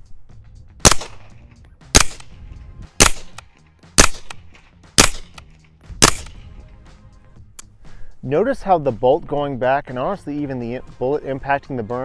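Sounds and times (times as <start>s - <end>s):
suppressed gunshots: 0.8s - 2.4s, 3.0s - 6.6s
bullets striking dirt: 0.8s - 6.6s
rifle bolt cycling: 2.0s - 2.3s, 3.0s - 4.4s, 5.0s - 6.4s.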